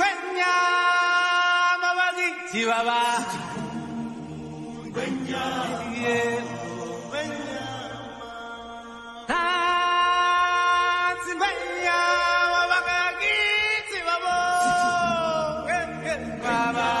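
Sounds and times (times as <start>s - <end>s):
voices singing long sliding notes: 2.9s - 17.0s.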